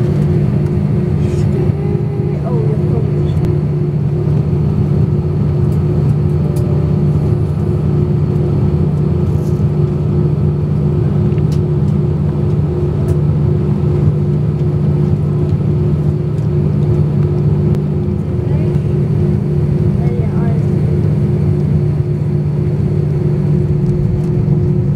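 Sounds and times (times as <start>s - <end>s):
jet engines humming: 0.0s - 24.9s.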